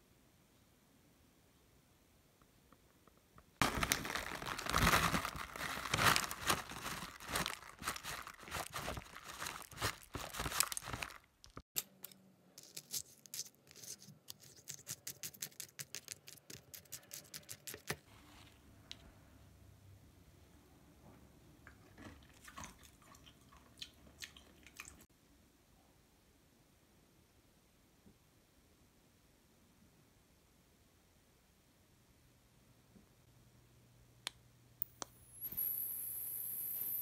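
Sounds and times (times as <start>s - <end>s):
plastic pouch crinkling: 3.6s - 11.6s.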